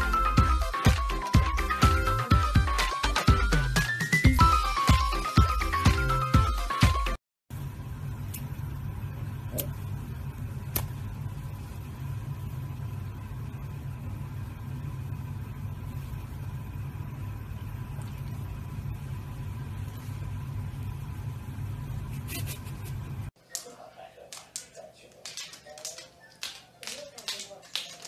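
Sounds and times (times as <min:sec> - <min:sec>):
low hum: 0:07.5 - 0:23.3.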